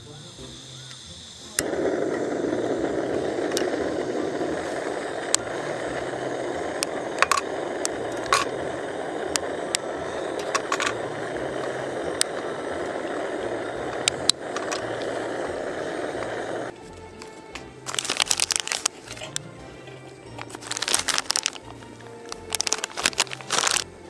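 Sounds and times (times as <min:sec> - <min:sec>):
gas stove burner hissing: 0:00.0 - 0:24.0
chocolate bar snapping: 0:17.9 - 0:19.4, 0:20.4 - 0:23.9.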